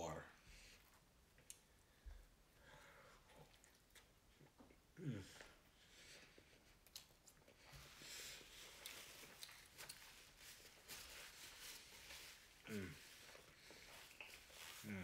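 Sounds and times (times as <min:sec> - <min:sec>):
person chewing food: 0:02.9 - 0:15.0
soft mouth sounds: 0:12.6 - 0:15.0.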